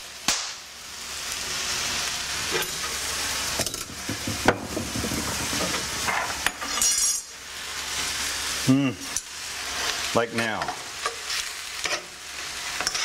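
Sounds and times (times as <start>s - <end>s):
meat sizzling in a wok: 0.0s - 13.0s
utensil scraping and knocking pan: 3.7s - 7.1s.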